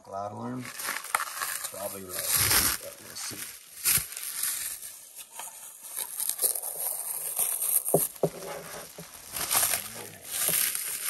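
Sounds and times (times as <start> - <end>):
bubble wrap crinkling: 0.6 - 11.0.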